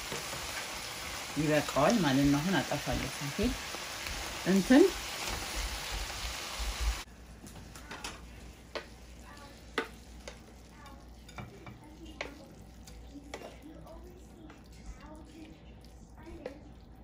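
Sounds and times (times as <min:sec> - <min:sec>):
vegetables sizzling in a frying pan: 0:00.0 - 0:15.4
wooden spoon stirring: 0:07.4 - 0:17.0
scrapes and taps on a plate: 0:11.3 - 0:13.6.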